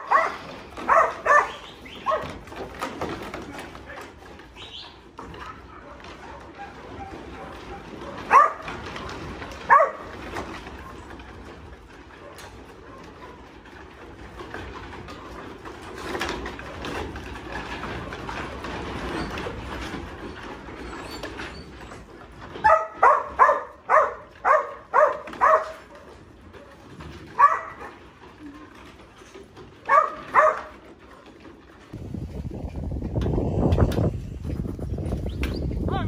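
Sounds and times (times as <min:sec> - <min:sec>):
dog barking: 0:00.0 - 0:02.4, 0:05.4 - 0:08.7, 0:09.7 - 0:10.1, 0:22.6 - 0:26.2, 0:27.4 - 0:27.9, 0:29.9 - 0:30.7.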